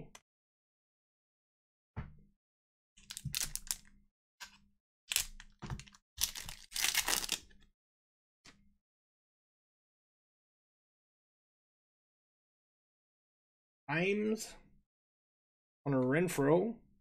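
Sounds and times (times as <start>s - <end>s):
foil wrapper tearing and crinkling: 3.1s - 3.8s, 5.1s - 7.5s.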